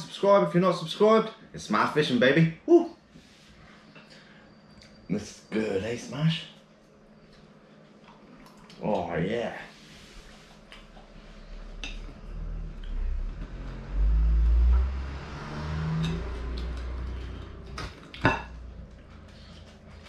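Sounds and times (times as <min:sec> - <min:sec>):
low rumble: 0:11.5 - 0:20.0.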